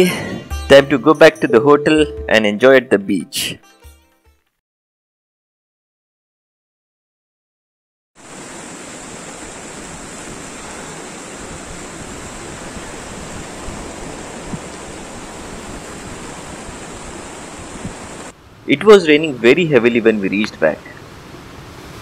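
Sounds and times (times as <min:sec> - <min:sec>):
sea surf breaking on beach: 0:08.2 - 0:18.3, 0:20.8 - 0:22.0.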